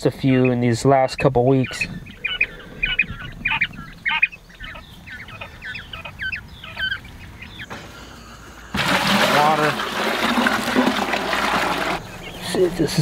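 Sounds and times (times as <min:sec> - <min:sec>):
quail chirping: 0:00.0 - 0:08.8, 0:12.0 - 0:13.0.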